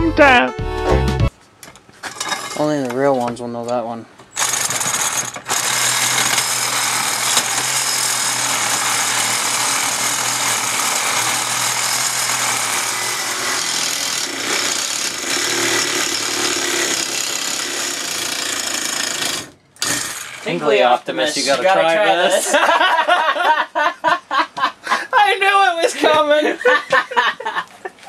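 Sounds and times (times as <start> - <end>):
reciprocating saw cutting metal: 4.4 - 20.7.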